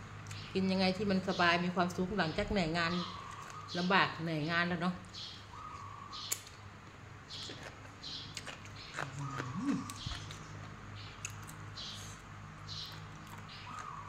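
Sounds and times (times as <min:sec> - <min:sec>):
lip clicks: 0:06.2 - 0:06.6
wet chewing: 0:07.3 - 0:12.2, 0:12.8 - 0:14.0.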